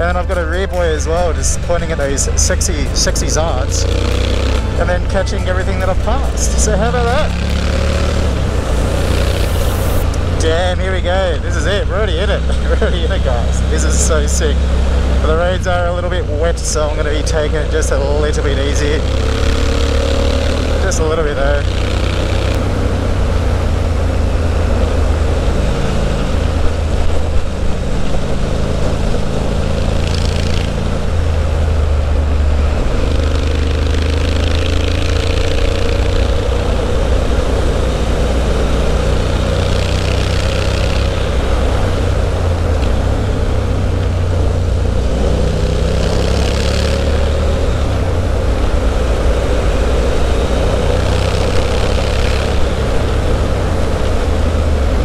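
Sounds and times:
motorcycle engine cruising: 0.0 - 55.0
wind rush: 7.2 - 11.6.

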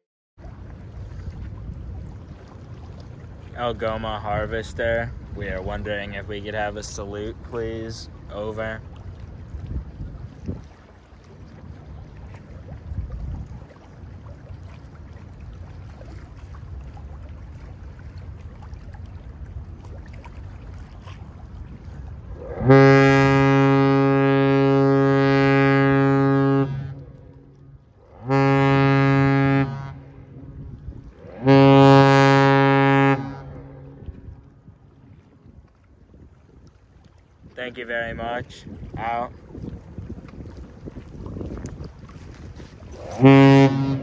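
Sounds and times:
deep ship's horn blasts: 21.7 - 35.3, 41.7 - 44.0.

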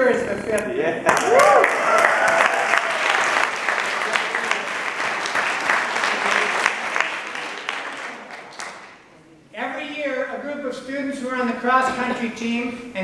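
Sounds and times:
person cheering: 1.1 - 3.3
audience applauding: 1.1 - 9.1.

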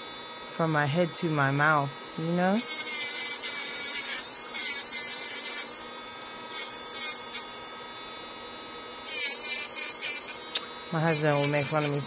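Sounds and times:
electric nail drill whining: 0.0 - 12.0
drill bit grinding nails: 1.6 - 7.7, 9.0 - 12.0.

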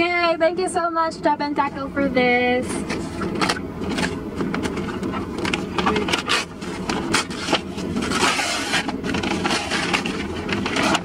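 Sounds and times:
paper bag tearing and crinkling: 6.2 - 11.0.

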